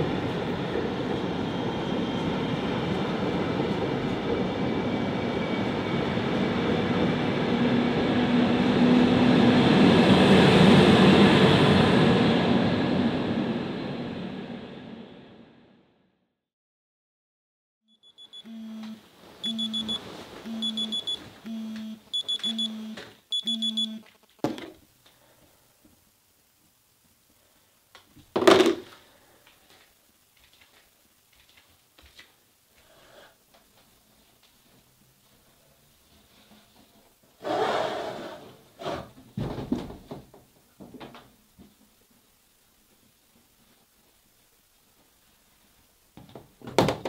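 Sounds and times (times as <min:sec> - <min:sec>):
phone alarm beeping: 0:17.9 - 0:24.1.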